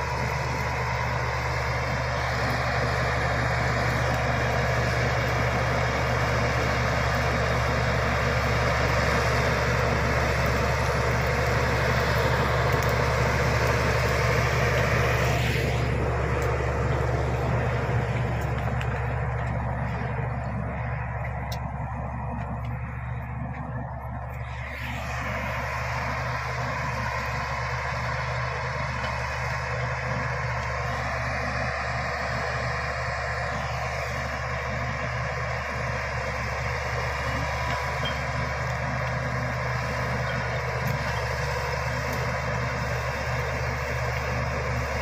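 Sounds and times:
bulldozer diesel engine: 0.0s - 45.0s.

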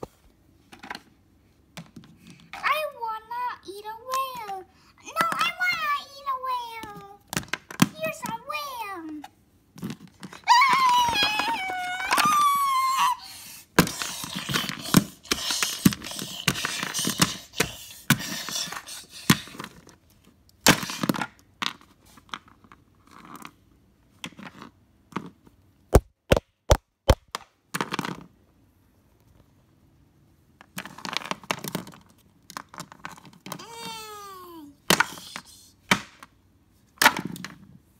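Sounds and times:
plastic toys handled: 6.7s - 12.7s, 13.8s - 25.6s, 30.6s - 34.2s, 34.9s - 37.9s.

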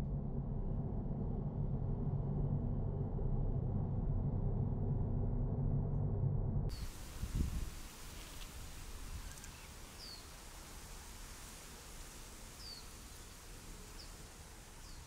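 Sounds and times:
soft breeze hiss: 6.7s - 15.0s
bird chirping: 8.2s - 10.5s, 12.5s - 15.0s.

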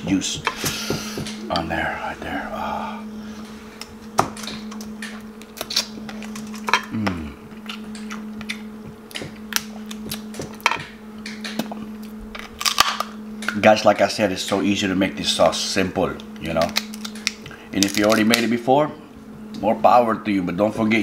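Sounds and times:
steady low hum: 0.0s - 21.0s
chewing: 5.7s - 10.6s.

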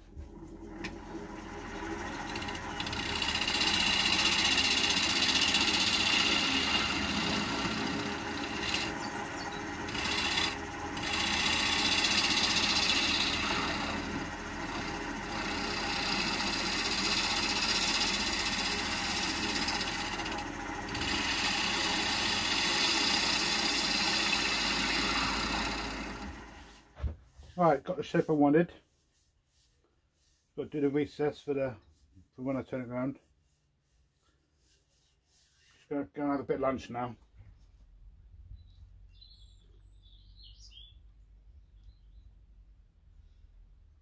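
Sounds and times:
wood lathe gouge cutting: 0.6s - 26.8s.

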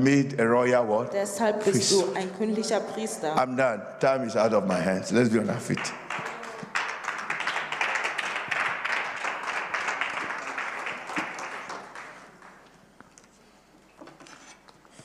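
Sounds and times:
congregation applauding: 5.4s - 12.9s.

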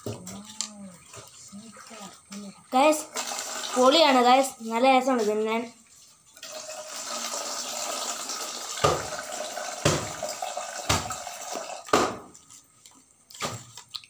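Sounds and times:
running water: 0.0s - 12.5s
chips crunching while chewed: 12.4s - 14.0s.

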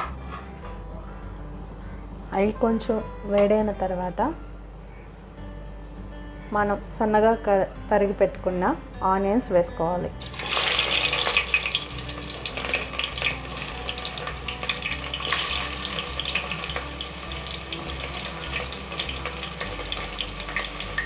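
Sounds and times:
onions sizzling in hot oil: 10.2s - 21.0s.

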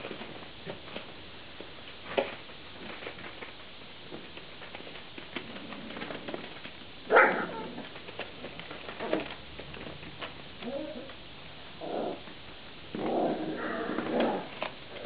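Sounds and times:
puppy paws on newspaper: 0.0s - 10.7s.

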